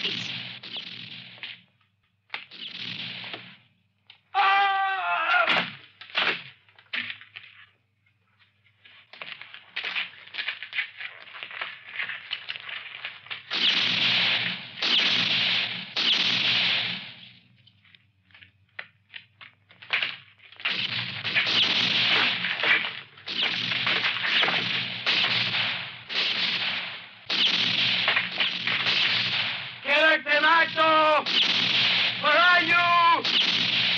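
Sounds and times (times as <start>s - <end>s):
loud gunshots with ringing tails: 0.0s - 1.4s, 2.6s - 3.6s, 13.5s - 17.3s, 20.7s - 33.9s
rapid small clicks and crackles: 8.4s - 33.9s.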